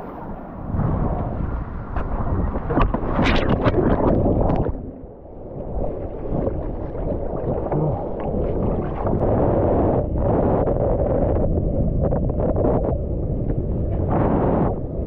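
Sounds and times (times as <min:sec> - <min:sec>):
wind buffeting microphone: 0:00.0 - 0:15.0
water splashing: 0:01.8 - 0:10.2.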